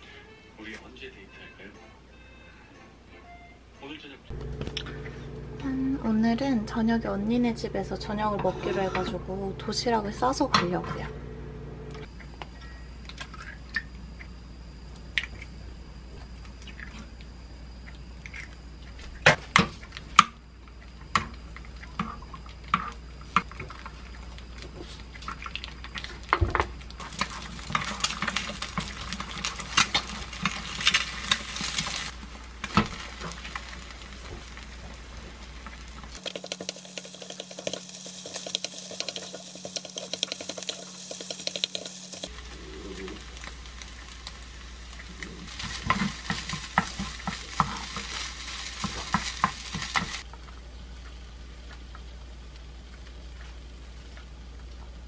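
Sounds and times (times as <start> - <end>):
wooden spoon scraping pan: 8.2 - 9.2
food sizzling in oil: 26.6 - 50.3
eggs cracked against pan: 35.6 - 42.4, 43.2 - 50.3.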